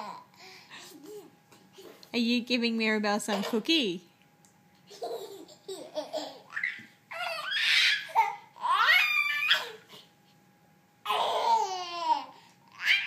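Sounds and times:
young children laughing: 4.8s - 8.4s.

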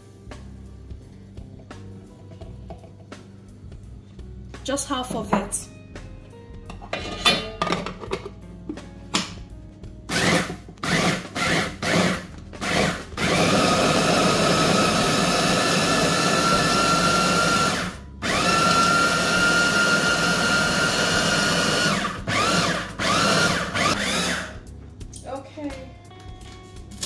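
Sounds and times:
electric chopper motor whining: 10.1s - 24.5s.

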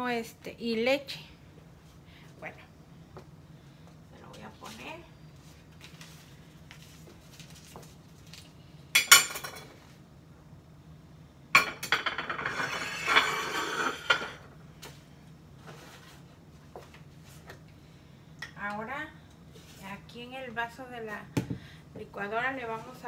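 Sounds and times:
dishes and glass clinking: 9.0s - 9.7s, 11.6s - 14.4s.

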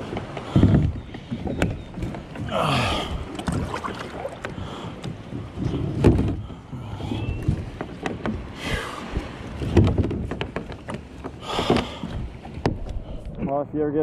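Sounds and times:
buckle clicks and knocks: 7.4s - 8.5s, 9.6s - 13.4s.

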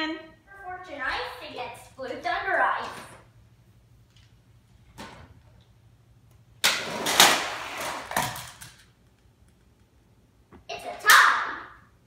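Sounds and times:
toy trucks rolling down plastic ramp: 6.7s - 8.9s.

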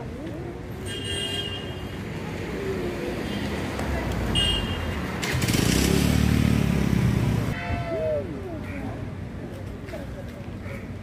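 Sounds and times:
road traffic noise: 0.0s - 11.0s
vehicle engine close by: 5.0s - 7.6s.

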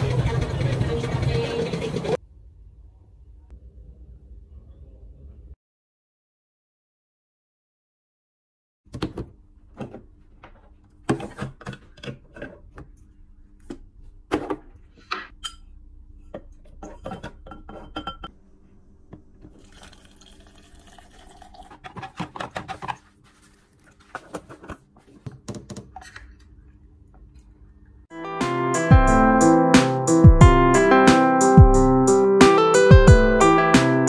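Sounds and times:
glass and cup clinks: 17.2s - 18.3s
liquid pouring into glass: 19.6s - 21.8s.

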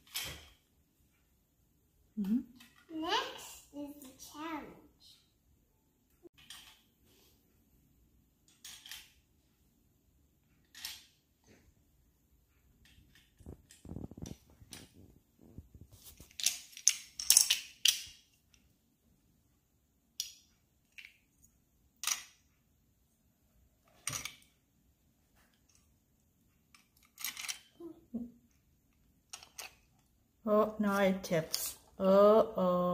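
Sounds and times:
plastic toy bricks clicking: 8.5s - 9.2s, 16.3s - 18.3s, 22.0s - 22.4s, 26.7s - 27.8s, 29.3s - 30.1s
rustling and clatter: 12.6s - 18.3s.

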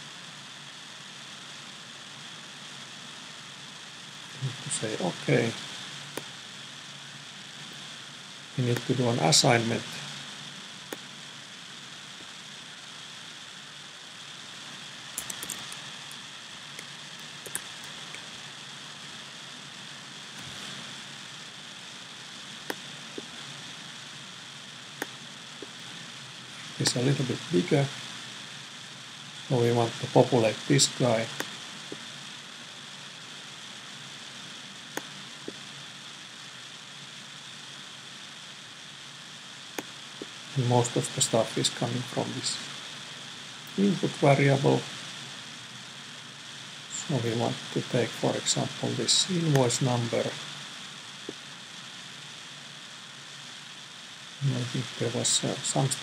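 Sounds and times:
microphone background hiss: 0.0s - 56.0s
mouse and keyboard clicks: 15.2s - 16.2s, 16.8s - 18.2s.

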